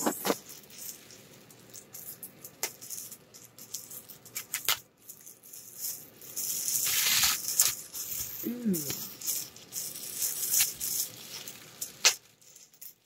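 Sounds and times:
bubble wrap crinkling: 0:00.0 - 0:13.0
bubble wrap rustling: 0:00.0 - 0:13.0.

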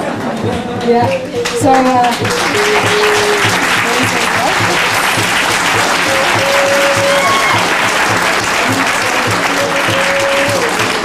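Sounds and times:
audience applauding: 0:00.0 - 0:11.0
background music with steady beat: 0:00.0 - 0:11.0.

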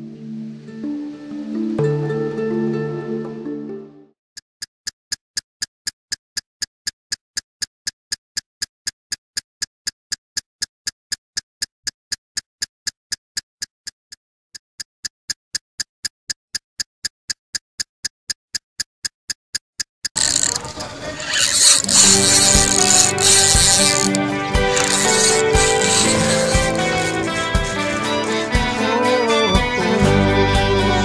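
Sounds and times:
sharp ticking: 0:14.8 - 0:28.9.

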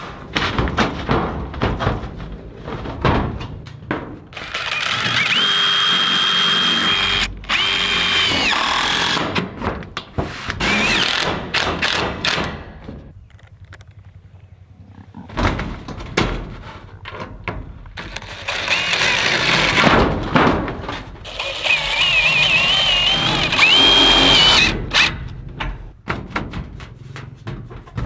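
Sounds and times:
knocks and taps on metal roof: 0:00.3 - 0:04.3, 0:25.6 - 0:28.0
impact driver motor whine: 0:04.4 - 0:09.2, 0:21.4 - 0:25.1.

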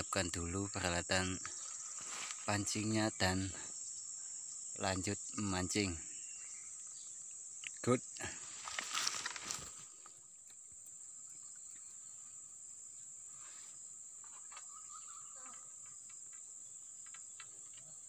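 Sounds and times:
insects chirring: 0:00.0 - 0:18.0
handling rustle: 0:01.7 - 0:02.5, 0:08.4 - 0:10.1.

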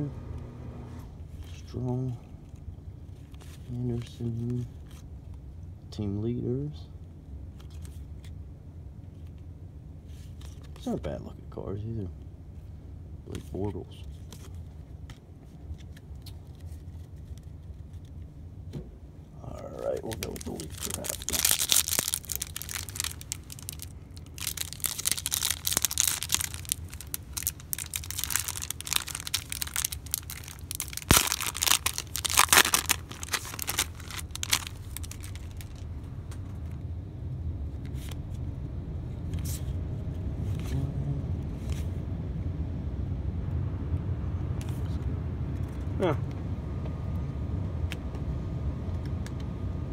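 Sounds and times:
low rumble: 0:18.9 - 0:49.9
foil wrapper tearing and crinkling: 0:19.8 - 0:35.8
cards ticking when handled: 0:19.8 - 0:36.5.

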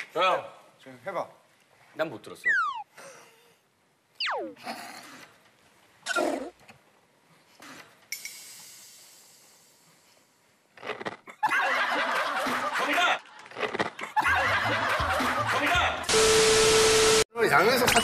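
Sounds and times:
group laughing loudly: 0:11.4 - 0:16.1.

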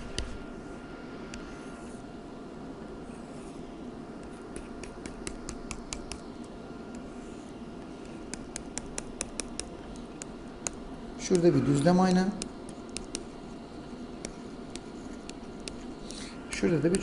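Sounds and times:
low room hiss: 0:00.0 - 0:17.0
stylus clicking on drawing tablet: 0:04.2 - 0:06.5, 0:08.0 - 0:11.5, 0:12.4 - 0:13.4, 0:14.2 - 0:15.9.

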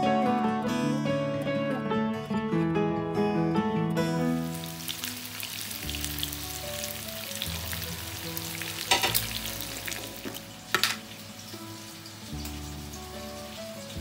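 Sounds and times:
chicken frying in oil: 0:04.4 - 0:14.0.

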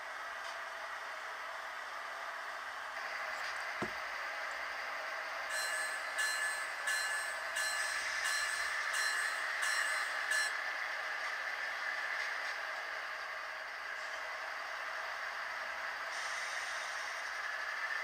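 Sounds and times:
electronic locomotive bell ringing: 0:05.5 - 0:10.8.

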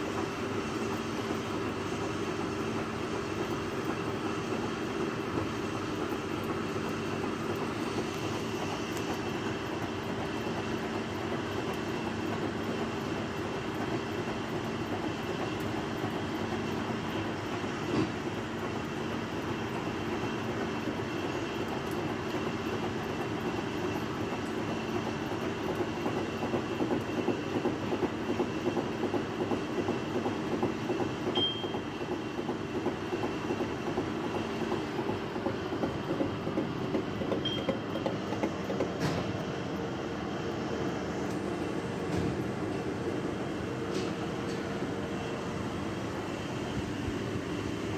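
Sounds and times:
milling machine running: 0:00.0 - 0:47.9.

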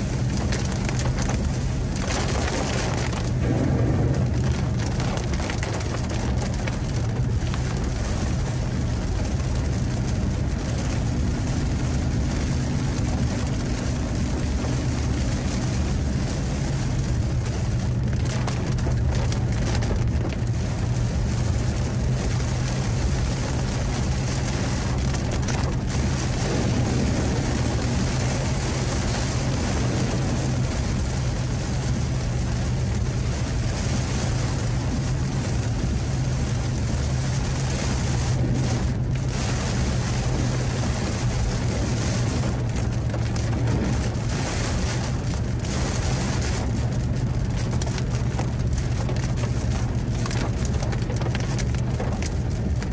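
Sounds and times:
car engine and tyres drone: 0:00.0 - 0:52.9
hiss of water and rain: 0:00.0 - 0:52.9.

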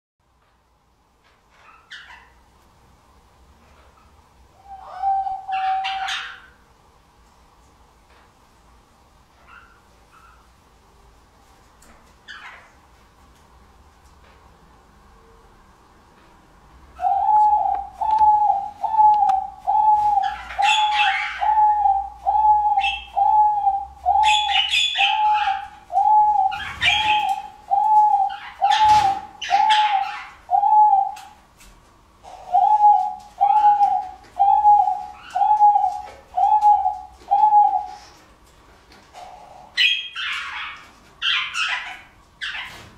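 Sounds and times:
dove cooing softly: 0:04.6 - 0:06.6, 0:17.0 - 0:31.4, 0:32.2 - 0:38.3, 0:39.1 - 0:40.8.

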